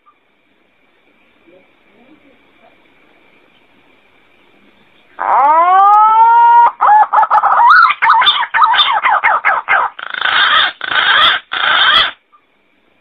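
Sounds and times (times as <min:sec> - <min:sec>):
green pigeon calling: 0:05.1 - 0:12.5.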